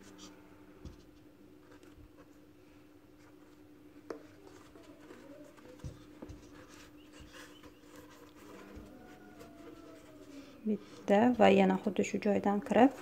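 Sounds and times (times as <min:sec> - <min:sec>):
crochet hook rustling through yarn: 0:03.2 - 0:13.0.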